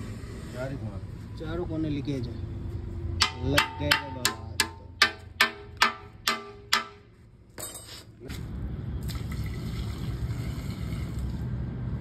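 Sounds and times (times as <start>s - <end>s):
water splashing into a tank: 9.0s - 11.4s.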